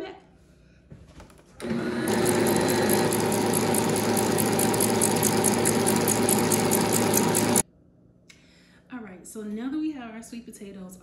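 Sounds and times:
stand mixer whisking: 1.6 - 7.6.

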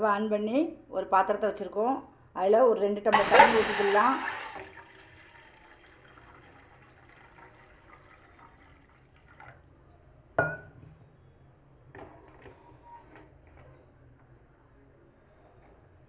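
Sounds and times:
water pouring into saucepan: 3.2 - 9.7.

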